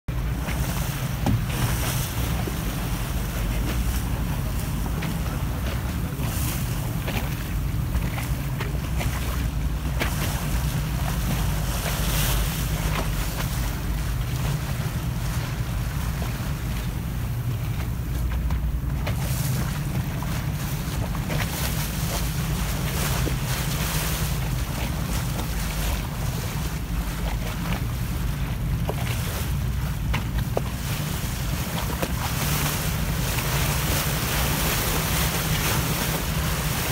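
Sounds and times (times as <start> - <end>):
motorboat engine rumbling: 0.0 - 36.9
water slapping against hull: 0.1 - 36.9.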